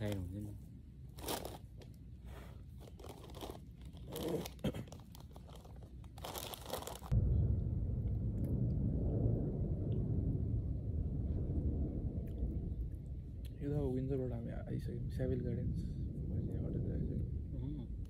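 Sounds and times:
crisp packet crinkling: 1.1 - 1.8, 2.8 - 7.1
crisps being crunched: 1.1 - 2.0, 2.7 - 7.1
low rumble: 5.2 - 18.0.

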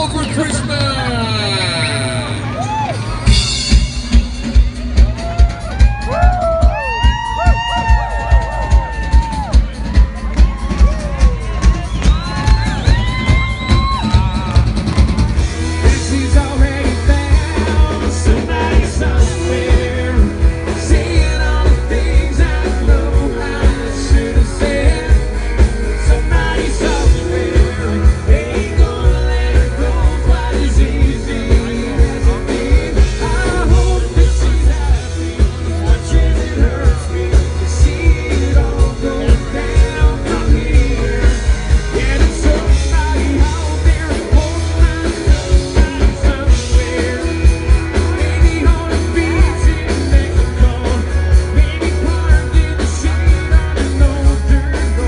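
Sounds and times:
drums with steady beat: 0.0 - 55.0
electric guitars: 0.0 - 55.0
person singing: 15.6 - 55.0.

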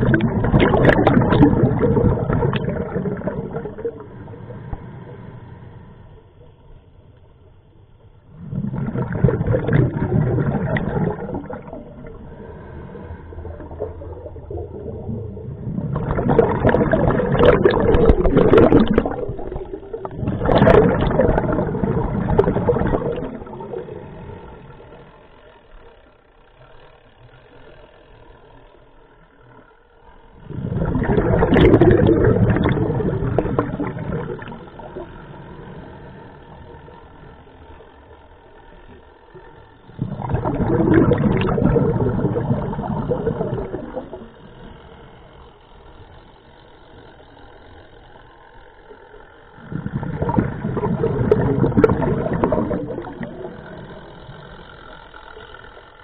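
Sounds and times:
scuba regulator exhaust bubbles: 0.0 - 5.5, 8.0 - 25.9, 30.3 - 56.0.

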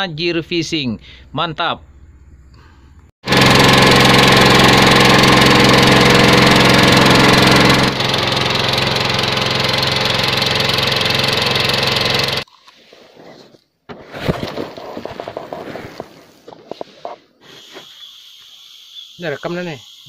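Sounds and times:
boat engine running: 3.2 - 12.4.

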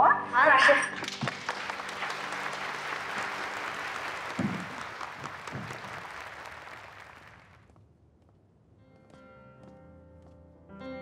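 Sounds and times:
audience applauding: 1.0 - 7.7.

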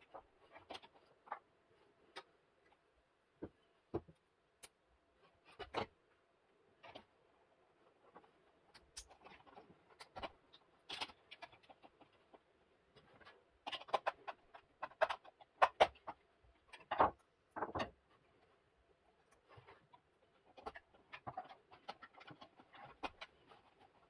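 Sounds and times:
wires rustling and snapping: 0.0 - 6.1, 7.8 - 24.0
plastic parts knocking on wood: 13.6 - 18.0.

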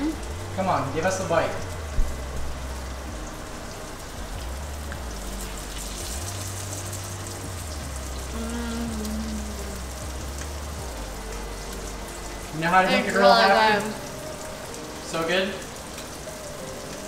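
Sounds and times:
person humming mmm: 0.0 - 0.5, 8.0 - 14.0
fish sizzling in butter: 0.0 - 17.0.

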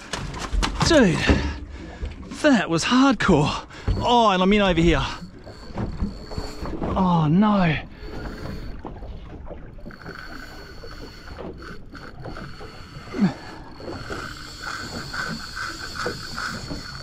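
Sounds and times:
water and boat noise: 0.0 - 17.0
fishing reel whirring: 3.4 - 17.0.

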